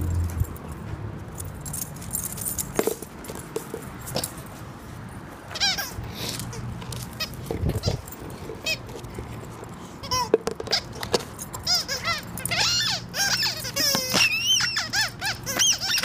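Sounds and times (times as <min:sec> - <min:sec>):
squeaky dog toy squeaks: 0:05.5 - 0:09.1, 0:10.0 - 0:16.0.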